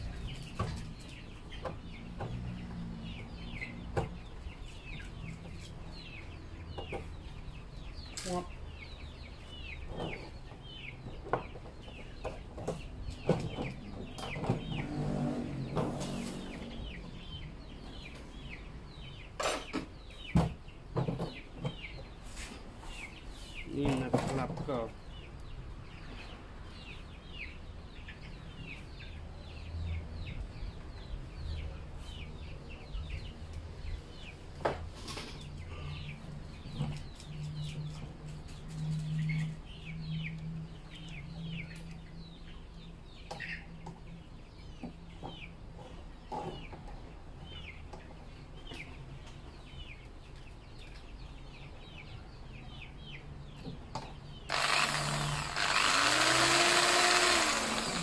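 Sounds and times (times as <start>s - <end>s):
chickens and birds chirping: 0.0s - 58.0s
electric drill spinning up: 54.5s - 58.0s.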